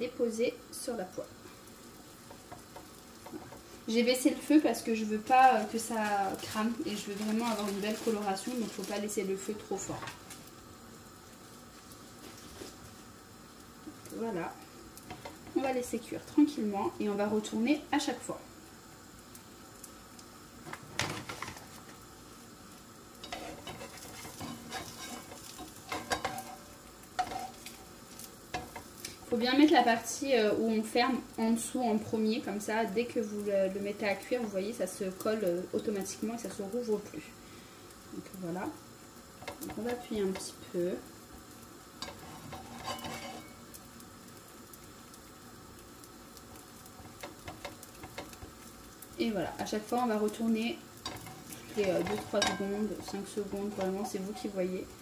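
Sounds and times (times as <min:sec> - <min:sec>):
pastry sizzling in pan: 0:00.0 - 0:55.0
spatula scraping a pan: 0:23.2 - 0:29.8, 0:42.0 - 0:43.7, 0:46.9 - 0:48.7, 0:51.0 - 0:54.8.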